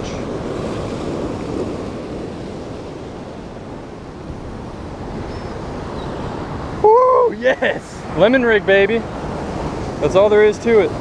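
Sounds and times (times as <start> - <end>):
surf washing against rocks: 0.0 - 11.0.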